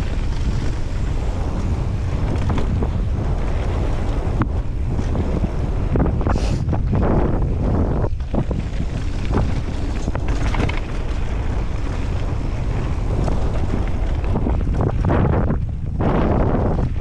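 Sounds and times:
bike knocks and rattles: 0.0 - 17.0
bike tyre noise on dirt: 0.0 - 17.0
wind buffeting microphone: 0.0 - 17.0.

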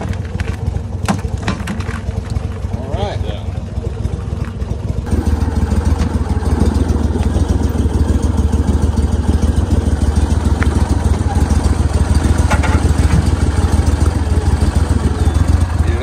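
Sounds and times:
boat motor idling: 0.0 - 16.0.

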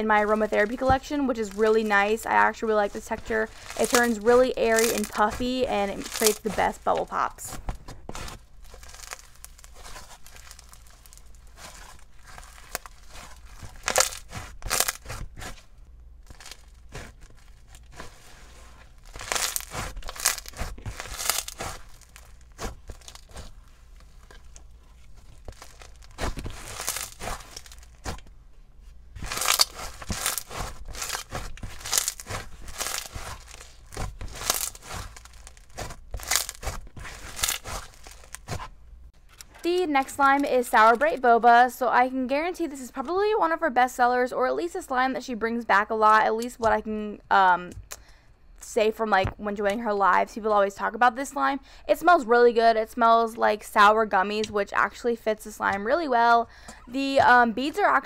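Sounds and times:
hands squishing foam slime: 0.0 - 38.8.

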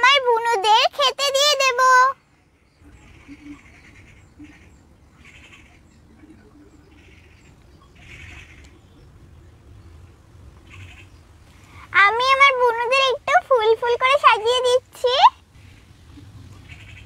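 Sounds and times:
bird chirping: 1.5 - 12.4, 15.4 - 17.0
low steady rumble: 2.2 - 17.0.

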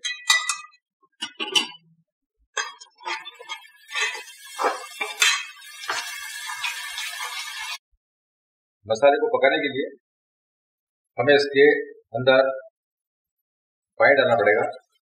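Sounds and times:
frying sizzle: 2.6 - 7.8
metal ladle scraping a pot: 2.6 - 7.8.

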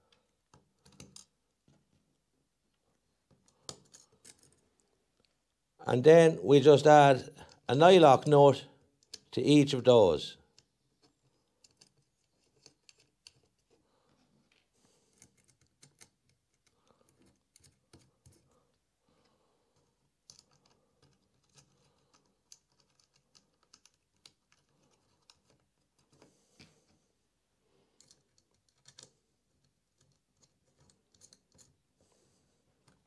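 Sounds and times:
small clicks and taps of nuts: 0.1 - 1.8, 10.5 - 13.8, 14.4 - 18.5, 19.8 - 26.7, 28.0 - 31.8.

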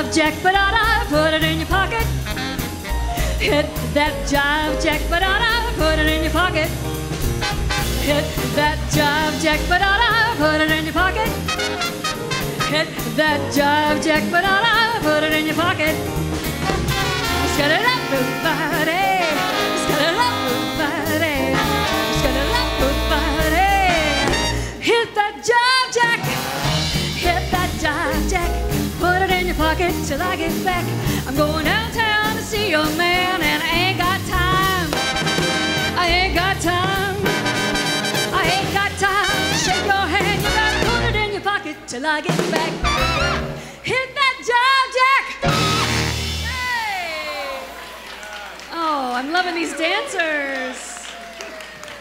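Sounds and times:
upright bass: 0.0 - 24.8, 26.2 - 41.4, 42.6 - 43.7, 45.4 - 47.2
swing band playing jazz: 0.0 - 48.2
trombone: 1.2 - 3.5, 5.4 - 24.9, 26.2 - 28.5, 33.6 - 41.5, 42.7 - 43.6, 45.4 - 46.5
trumpet: 2.0 - 3.2, 7.2 - 9.4, 11.1 - 13.1, 16.5 - 25.0, 26.0 - 27.3, 34.6 - 41.5, 42.7 - 43.7, 45.4 - 47.8.

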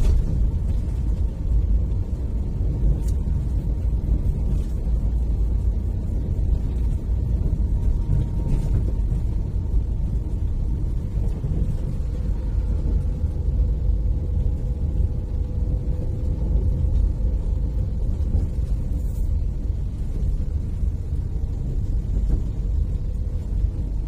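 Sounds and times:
tyre noise on paved road: 0.0 - 24.0
vehicle engine rumble: 0.0 - 24.0.

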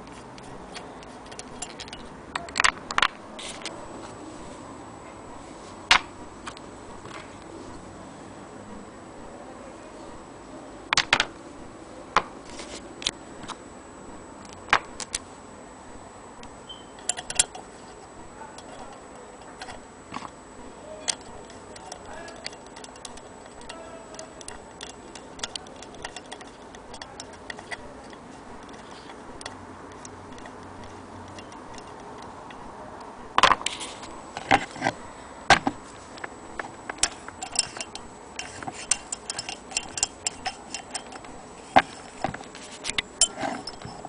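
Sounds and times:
sewing machine crank ticking: 21.1 - 32.6, 37.0 - 41.4.

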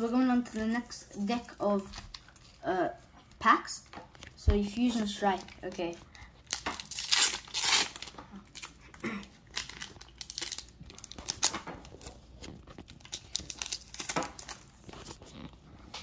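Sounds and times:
foil wrapper tearing and crinkling: 6.4 - 15.6.

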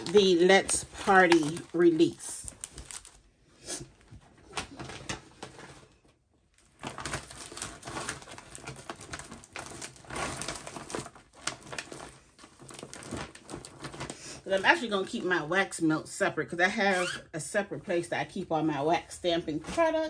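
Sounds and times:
plastic packaging crinkling: 0.0 - 15.3.

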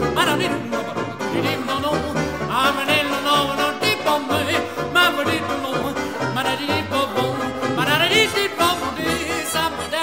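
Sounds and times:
melody over pulsing bass line: 0.0 - 7.9.

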